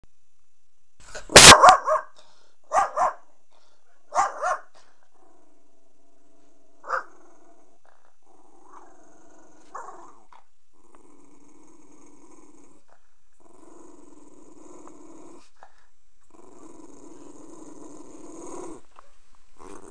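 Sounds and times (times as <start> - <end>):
dog barking: 1.3 - 3.3, 4.1 - 4.8, 6.9 - 7.1
dog growling: 4.4 - 19.9.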